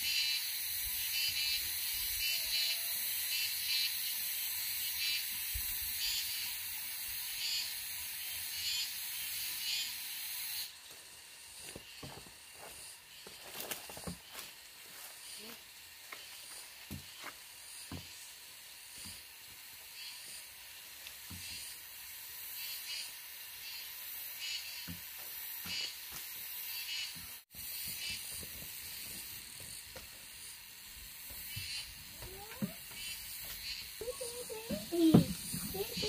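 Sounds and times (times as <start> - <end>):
pulsing insect hiss: 0.0 - 36.0
footsteps on dirt path: 10.8 - 18.2, 31.0 - 36.0.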